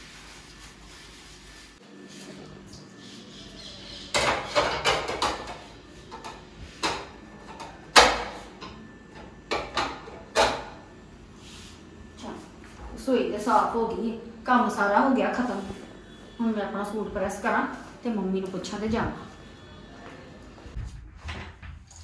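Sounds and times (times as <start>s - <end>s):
dishes and utensils clattering: 4.1s - 7.0s.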